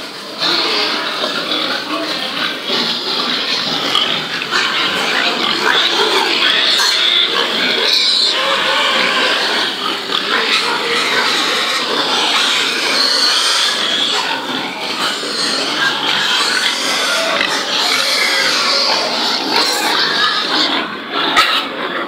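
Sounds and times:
piglets squealing and grunting: 0.0 - 22.0.

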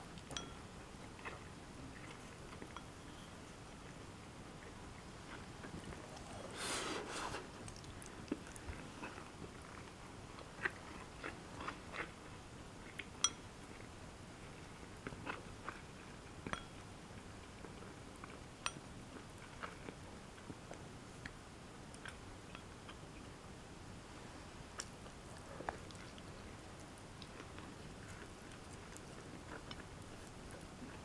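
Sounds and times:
person chewing: 5.3 - 12.2.

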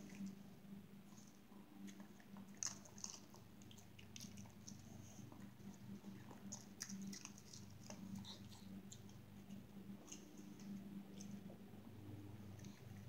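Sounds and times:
dog crunching treats: 1.1 - 11.4.

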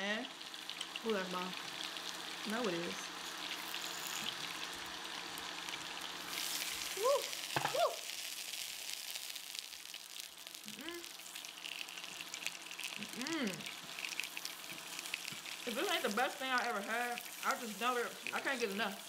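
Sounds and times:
food sizzling on grill: 0.0 - 19.0
person humming: 7.0 - 8.0, 10.7 - 11.1, 13.0 - 13.7.

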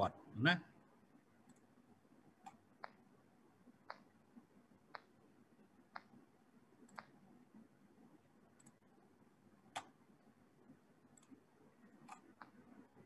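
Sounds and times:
faint sharp clicks: 2.4 - 3.0, 3.8 - 4.1, 4.9 - 5.1, 5.9 - 6.2, 6.8 - 7.2, 8.6 - 8.8, 12.0 - 12.6.

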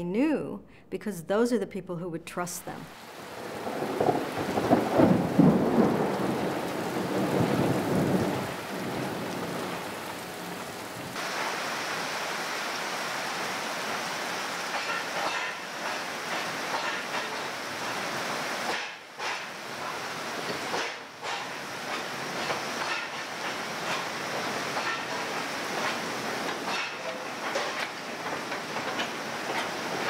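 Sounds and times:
heavy rain: 2.8 - 30.0
thunder rumbling: 3.1 - 11.3.

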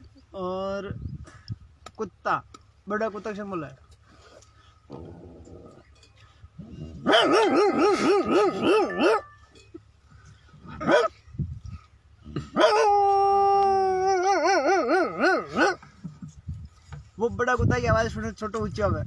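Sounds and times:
man howling like a dog: 6.9 - 9.2, 12.3 - 15.8
man yelping like a dog: 7.0 - 9.2, 10.7 - 11.1, 12.3 - 15.8.

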